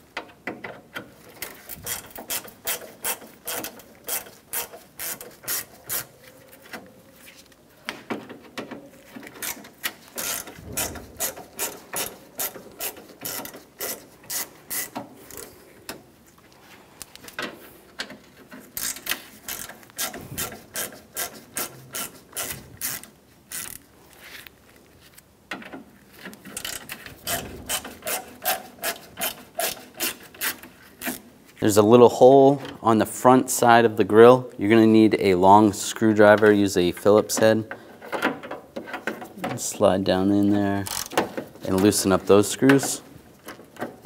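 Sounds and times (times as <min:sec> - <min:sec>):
ratcheting screwdriver clicking: 0:09.3 - 0:15.5.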